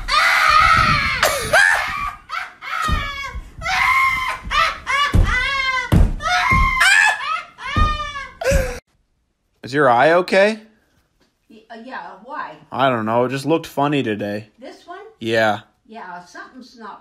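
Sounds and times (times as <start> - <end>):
man laughing wildly: 6.9 - 8.8.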